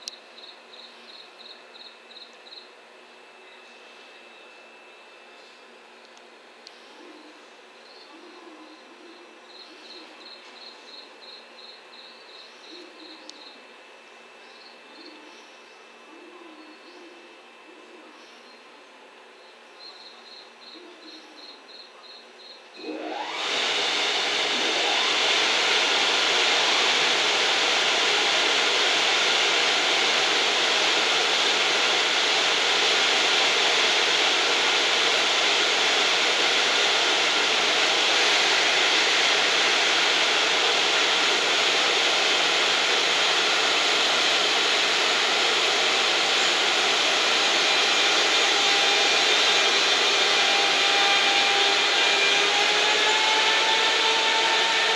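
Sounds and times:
insects chirping: 0:00.1 - 0:02.7, 0:09.5 - 0:13.6, 0:19.8 - 0:22.7
locomotive blowers whirring: 0:22.8 - 0:54.9.

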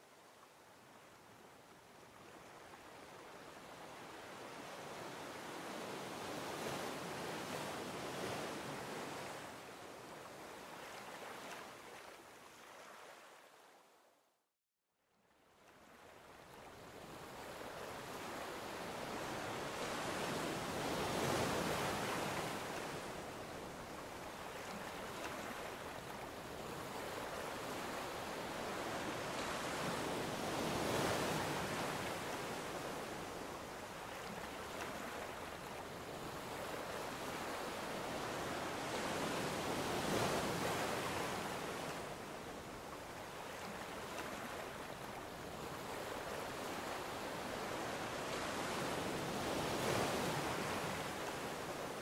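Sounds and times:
ocean waves breaking: 0:16.9 - 0:52.0.

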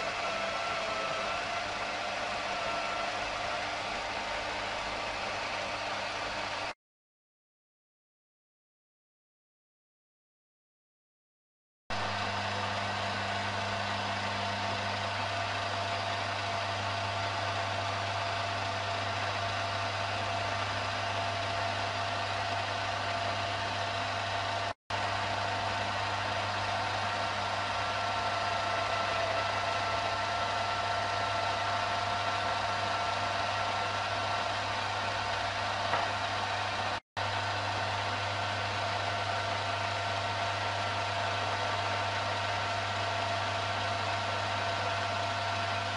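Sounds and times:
lathe motor whining: 0:00.0 - 0:06.7, 0:12.0 - 0:45.9.

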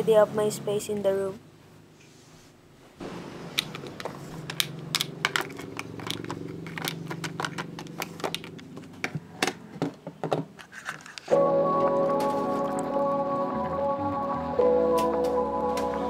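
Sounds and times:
small items clicking and knocking: 0:03.6 - 0:11.3.

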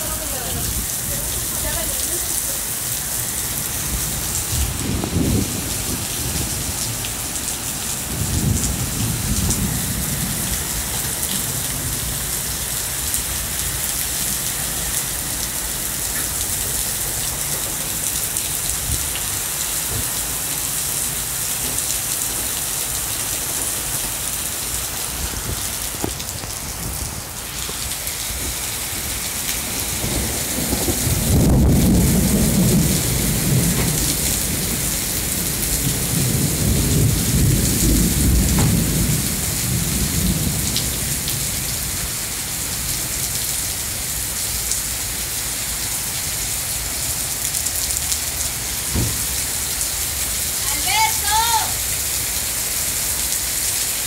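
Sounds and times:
thunder rumbling: 0:00.0 - 0:43.2
heavy rain pouring: 0:00.0 - 0:54.0.

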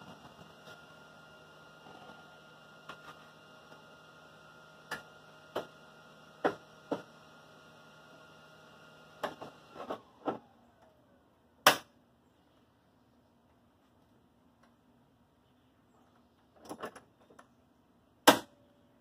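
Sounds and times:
low electrical hum: 0:00.0 - 0:19.0.

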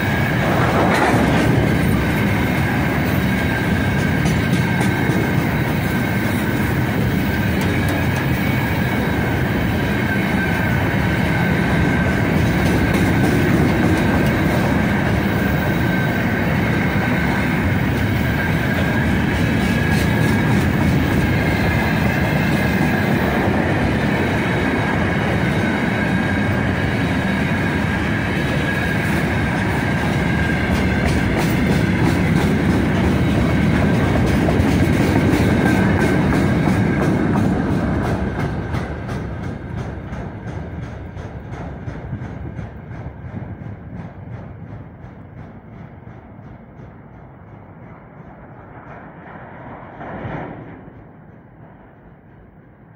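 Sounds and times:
rail joint clicks: 0:00.0 - 0:52.9
train wheels rumbling on rails: 0:00.0 - 0:52.9.

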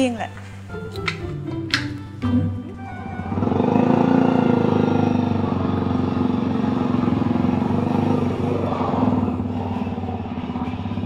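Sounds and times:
motorcycle engine running: 0:02.2 - 0:11.0.

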